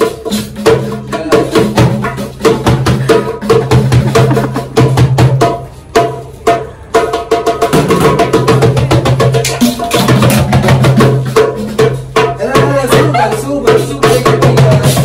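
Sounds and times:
frame drum beating: 0.0s - 15.0s.

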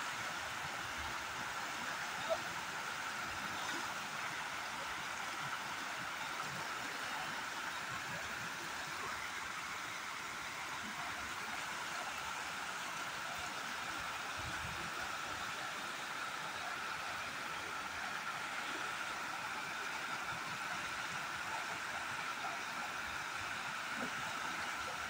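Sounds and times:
river water rushing: 0.0s - 25.0s.

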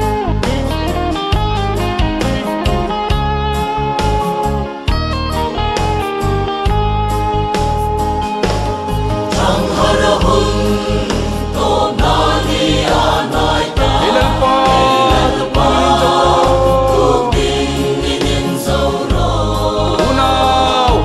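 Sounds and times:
choir singing a hymn: 9.2s - 21.0s.

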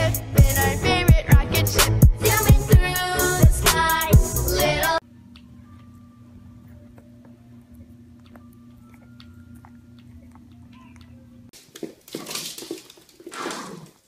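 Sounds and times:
puppy chewing a treat: 6.6s - 12.0s.

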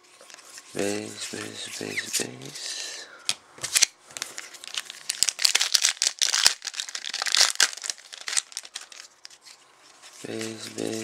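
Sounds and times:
plastic wrapper crinkling: 3.7s - 9.6s.

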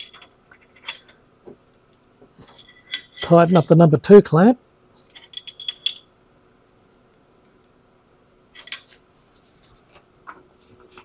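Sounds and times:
spanner clinking on metal: 0.0s - 1.2s, 2.4s - 3.8s, 5.1s - 6.1s, 8.6s - 9.0s.

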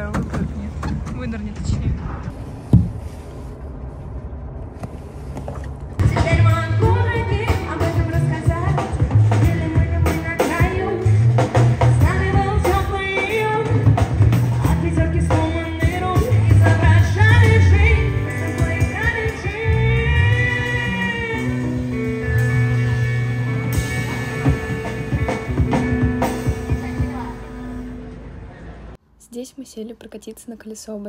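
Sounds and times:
heavy low beat: 6.0s - 28.3s
rock band playing: 6.0s - 28.3s
person singing: 14.6s - 21.8s.

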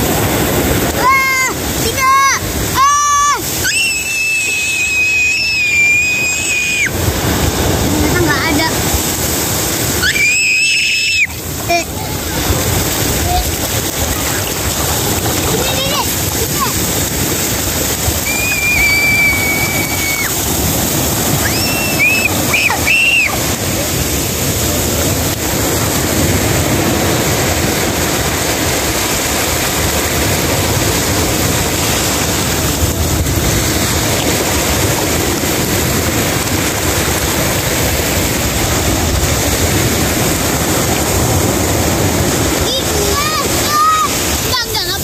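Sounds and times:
surf washing over sand: 0.0s - 45.0s
high-pitched squeals: 3.5s - 7.0s, 18.2s - 20.7s.

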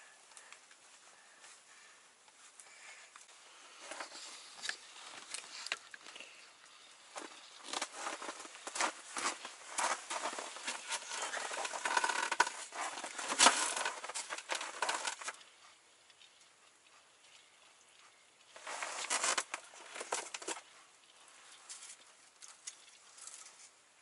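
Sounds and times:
clothing rustling: 7.0s - 15.4s, 18.5s - 23.8s.

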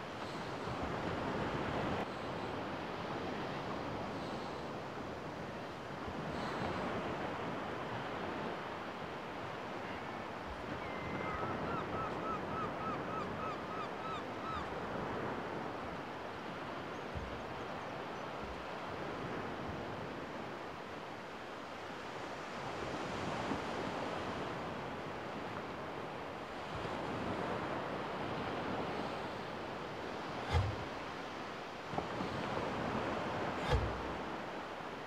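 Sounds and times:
small waves washing on sand: 0.0s - 13.4s, 14.3s - 35.0s
wind on microphone: 26.7s - 34.9s.

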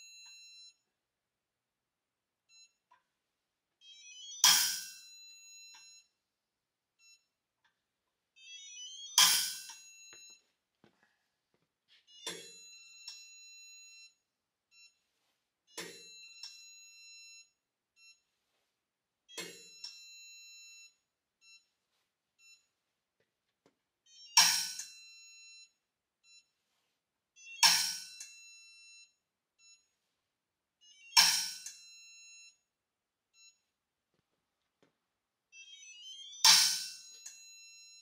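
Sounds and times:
high electronic beeping: 8.4s - 10.2s, 35.6s - 38.0s.

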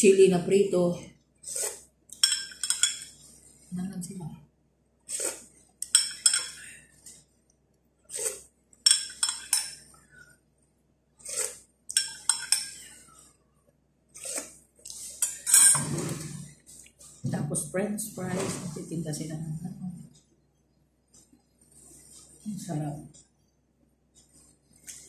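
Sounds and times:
spoon clinking in glass jar: 2.2s - 3.2s, 5.8s - 6.6s, 8.9s - 9.8s, 11.9s - 12.8s.

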